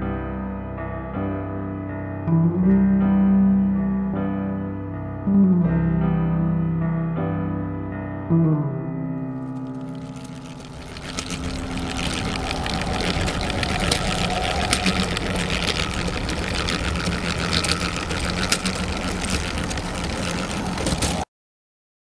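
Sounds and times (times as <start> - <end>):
plastic walking model rattling: 9.4 - 21.3.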